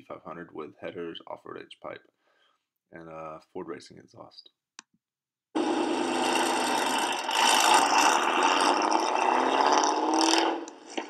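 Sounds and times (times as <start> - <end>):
car exhaust accelerating: 5.6 - 11.0.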